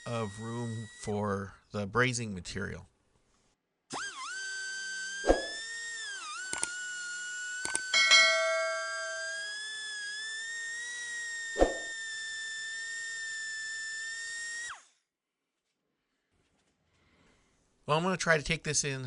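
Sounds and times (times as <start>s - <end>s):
die grinder whining: 0.0s - 1.5s, 3.9s - 15.0s
bell-like chime: 8.0s - 9.5s.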